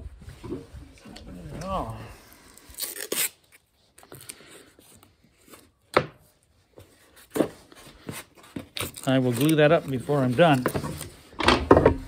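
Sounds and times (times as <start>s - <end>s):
tape strip pulled off roll: 2.6s - 3.6s.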